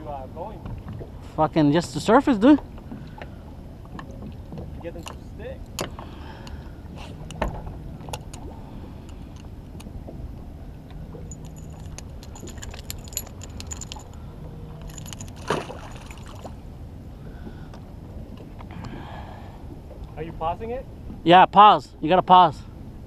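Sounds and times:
low steady rumble: 0.0s - 23.0s
fish splashing into water: 15.4s - 16.6s.

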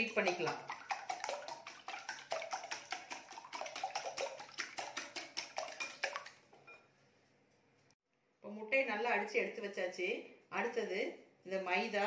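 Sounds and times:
whisk clicking against glass bowl: 0.0s - 6.4s.

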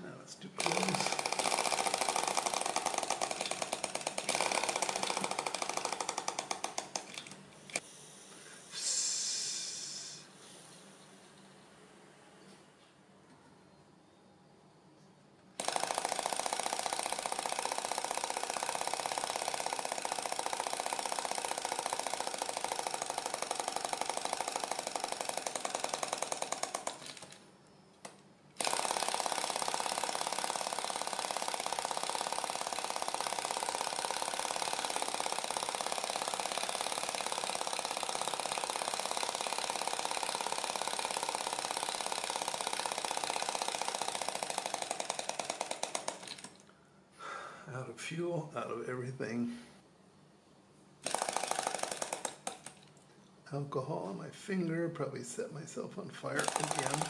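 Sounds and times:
small heat engine clattering: 0.6s - 7.8s, 15.6s - 27.4s, 28.0s - 46.6s, 51.0s - 52.8s, 56.3s - 57.0s.

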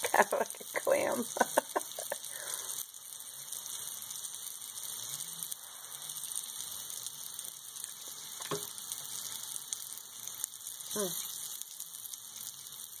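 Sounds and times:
mushrooms sizzling in a pan: 0.0s - 13.0s.

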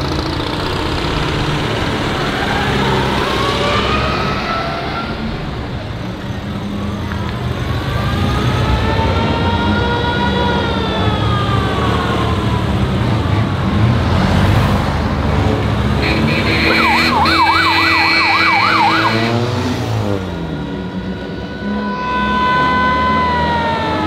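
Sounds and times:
engine and traffic rumble: 0.0s - 24.0s
ambulance siren: 2.2s - 13.4s, 16.0s - 24.0s.

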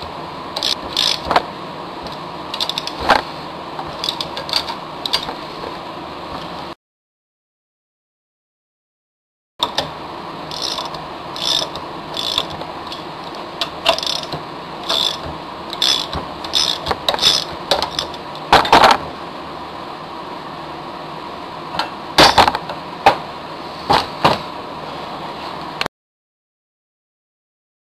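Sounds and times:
ratchet wrench clicking: 0.6s - 1.3s, 2.6s - 3.0s, 4.0s - 5.3s, 10.5s - 13.0s, 13.8s - 18.2s.

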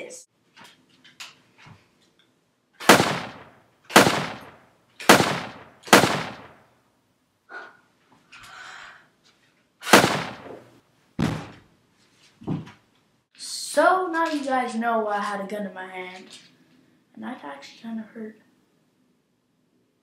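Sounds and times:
pistol gunshots: 2.8s - 6.6s, 9.8s - 10.6s
dull thump: 11.2s - 11.6s.

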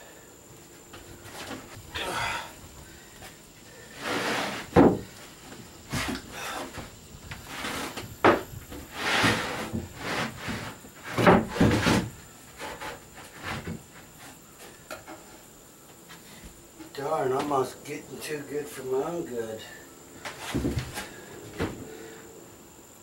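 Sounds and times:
wood scraping on wood: 3.8s - 15.4s
sharp wooden knocks: 4.7s - 5.1s.

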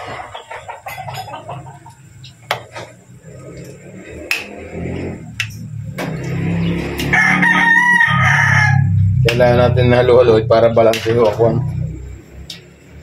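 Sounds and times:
low hum: 2.8s - 13.0s.

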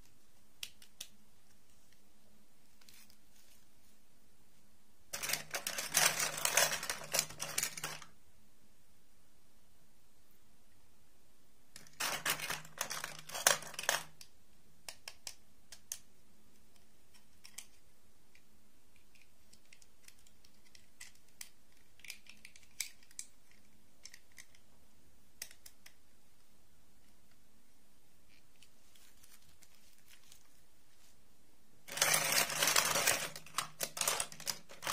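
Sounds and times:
plastic toys clattering in a box: 5.1s - 8.1s, 11.8s - 14.2s, 31.9s - 34.9s.

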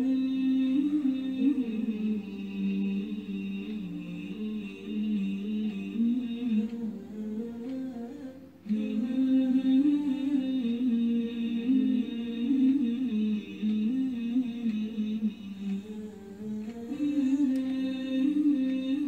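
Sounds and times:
person humming a slow melody: 0.0s - 19.0s.

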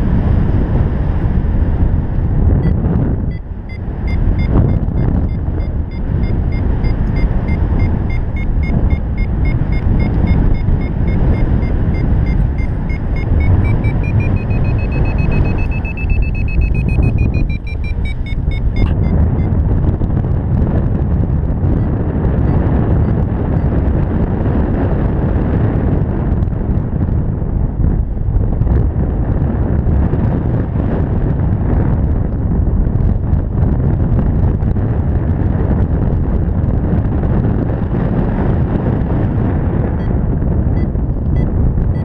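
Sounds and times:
wind rumble on microphone: 0.0s - 42.0s
variometer beeping: 2.6s - 19.9s, 21.6s - 23.9s, 39.9s - 42.0s.

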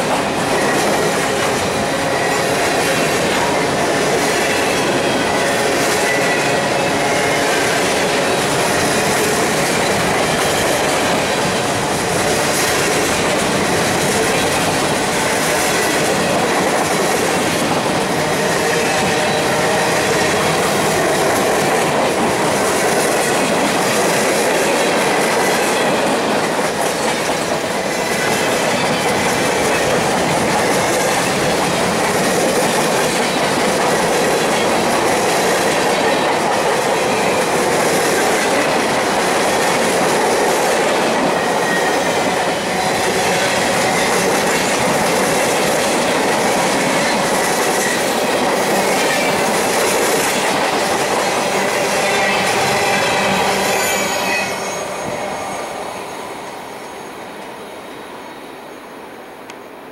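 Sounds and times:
train wheels clattering on rails: 0.0s - 57.5s
high wheel squeal: 41.0s - 44.8s, 51.3s - 59.0s.

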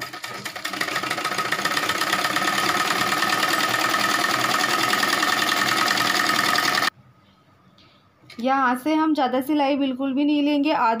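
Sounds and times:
sewing machine running: 0.0s - 6.9s.

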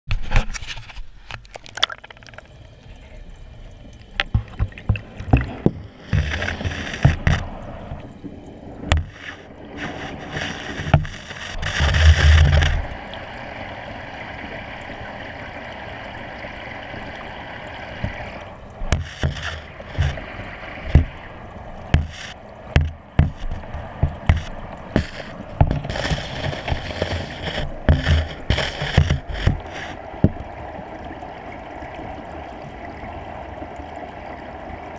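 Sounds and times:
water sloshing and gurgling: 0.1s - 34.9s
loud water rushing: 8.8s - 33.6s.

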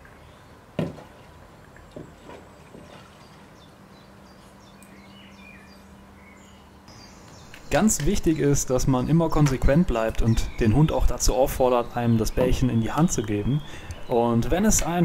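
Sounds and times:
birds chirping faintly: 0.0s - 15.0s
ball smacking into water tub: 0.8s - 1.2s.

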